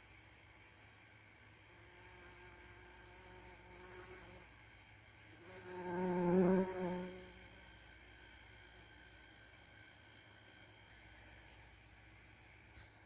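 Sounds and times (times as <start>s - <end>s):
bumblebee buzzing in flight: 1.6s - 4.6s, 5.3s - 10.8s.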